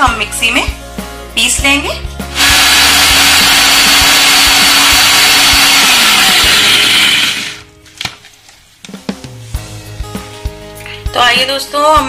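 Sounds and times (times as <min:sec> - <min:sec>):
mixer grinder running: 0:02.3 - 0:07.7.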